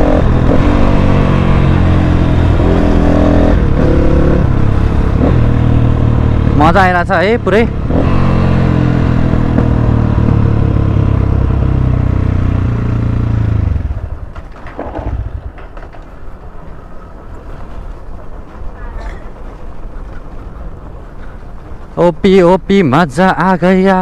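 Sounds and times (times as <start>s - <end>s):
dirt bike engine revving: 0.0s - 14.0s
wind and road noise: 0.0s - 24.0s.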